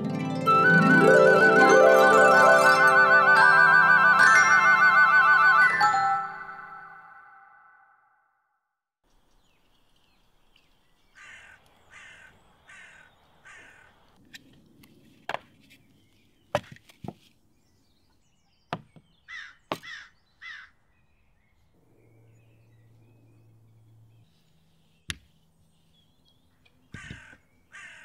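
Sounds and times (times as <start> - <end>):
crow cawing: 11.2 - 14.0, 19.3 - 20.8, 26.9 - 28.0.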